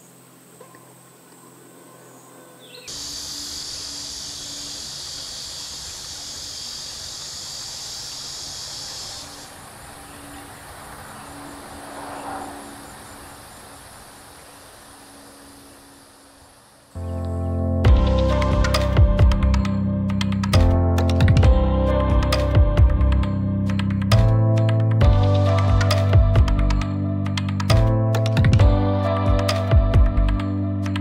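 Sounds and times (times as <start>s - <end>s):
insects trilling: 0.0s - 17.2s
loud high-pitched insect buzz: 2.1s - 16.8s.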